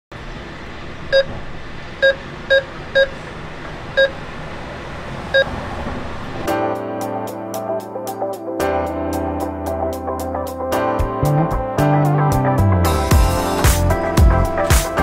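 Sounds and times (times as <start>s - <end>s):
keypad beeps: 1.1s - 1.4s, 2.0s - 3.2s, 4.0s - 4.2s.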